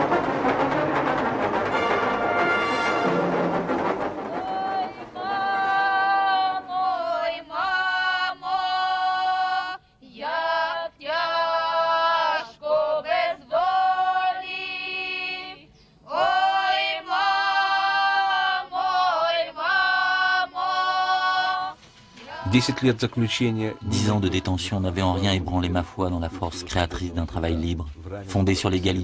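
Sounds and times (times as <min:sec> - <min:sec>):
women singing unaccompanied: 0:04.3 - 0:25.2.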